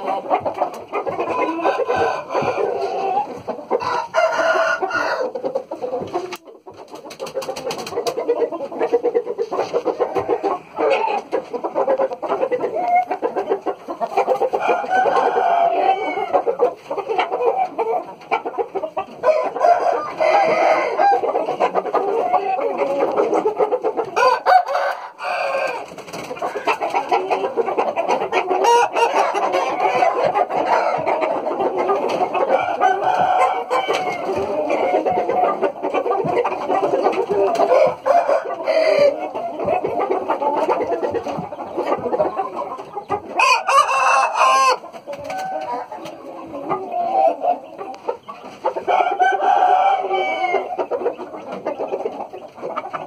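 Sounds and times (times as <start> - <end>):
roosters crowing: 0.0 - 6.4, 14.1 - 18.0, 19.2 - 48.0, 48.6 - 50.9
chickens clucking: 0.0 - 53.0.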